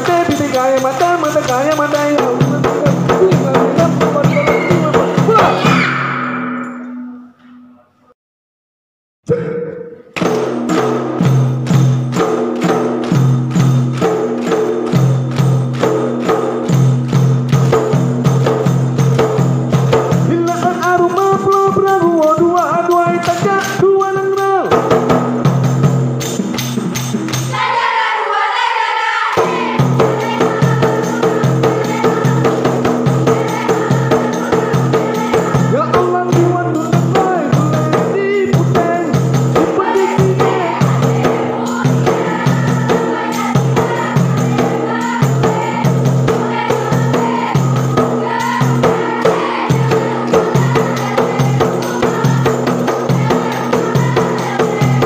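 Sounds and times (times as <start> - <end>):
voices chanting: 27.5 - 32.5, 39.6 - 55.0
frame drum beating: 29.4 - 55.0.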